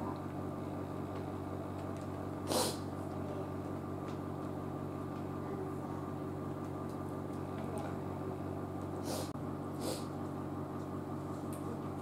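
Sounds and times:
mechanical room hum: 0.0s - 12.0s
sharp puff of noise: 2.4s - 2.9s, 9.0s - 10.1s.

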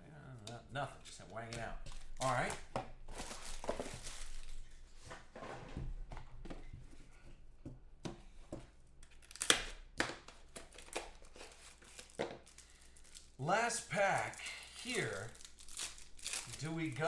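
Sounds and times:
wrapper rustling and crinkling: 1.9s - 4.8s, 10.7s - 17.0s.

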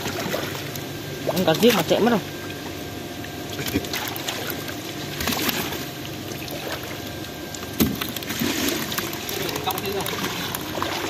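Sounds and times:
faint steady hum: 0.0s - 11.0s
water splashing and dripping: 3.6s - 11.0s.

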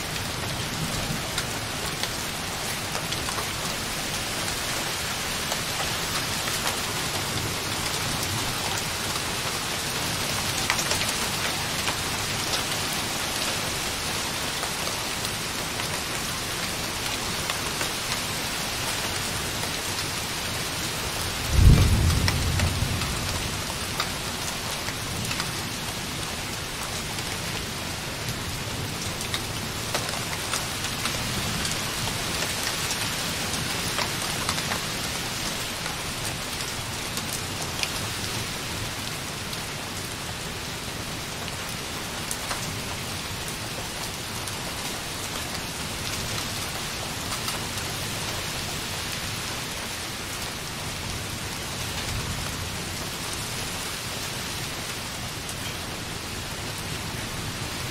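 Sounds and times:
light rain on a window: 0.0s - 57.9s
distant thunder rumbling: 21.5s - 23.4s.

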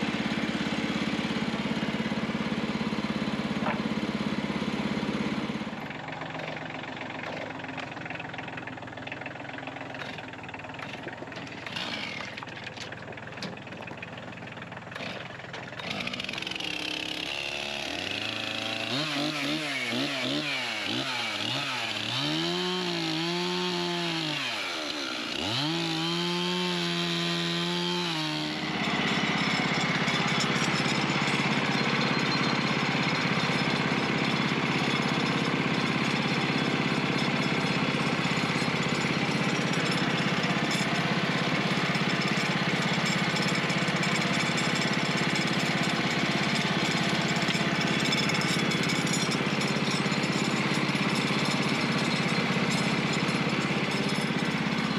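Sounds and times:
chainsaw revving: 0.0s - 54.9s
sawmill engine running: 0.0s - 54.9s.

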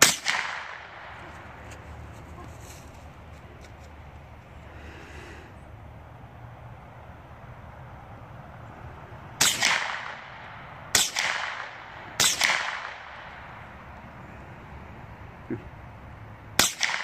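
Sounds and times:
rifle shots with echo: 0.0s - 1.4s, 9.4s - 13.6s, 16.6s - 17.0s.

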